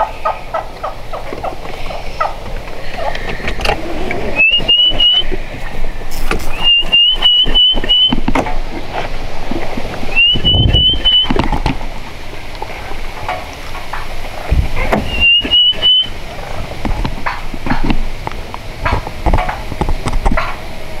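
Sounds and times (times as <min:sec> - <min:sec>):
low vehicle rumble: 0:00.0 - 0:21.0
high whistled notes: 0:04.3 - 0:05.3, 0:06.5 - 0:08.2, 0:10.1 - 0:11.4, 0:15.0 - 0:16.2.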